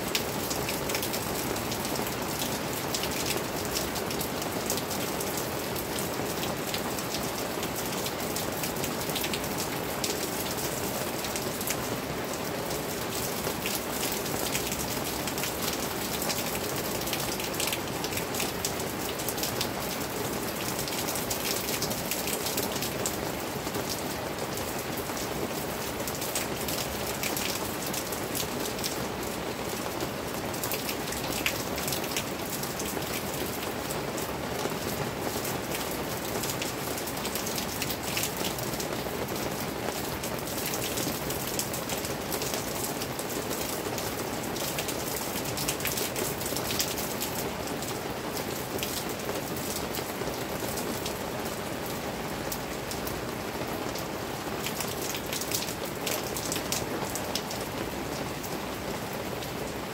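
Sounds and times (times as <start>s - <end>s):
rain drops hitting close by: 0.0s - 59.9s
steady rain: 0.0s - 59.9s.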